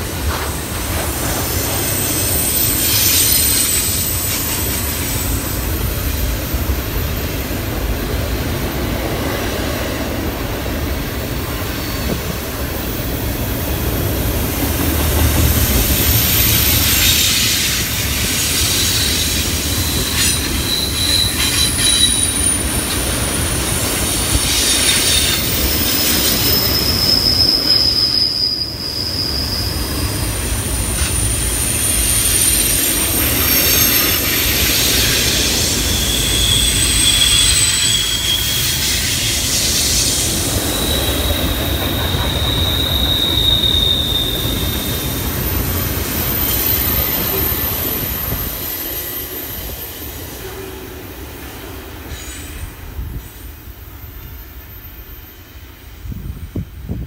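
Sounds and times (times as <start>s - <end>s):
wheel squeal on rails: 0.0s - 7.6s, 11.3s - 50.6s
freight train rumbling: 0.0s - 57.0s.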